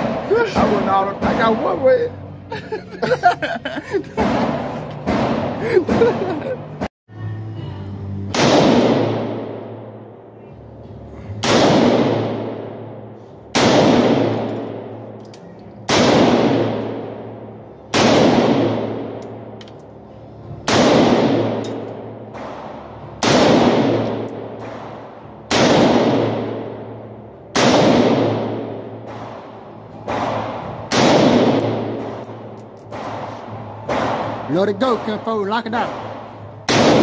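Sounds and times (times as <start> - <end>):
rifle shots echoing indoors: 8.3 - 10.3, 11.4 - 15.2, 15.8 - 19.6, 20.6 - 34.5, 36.0 - 37.0.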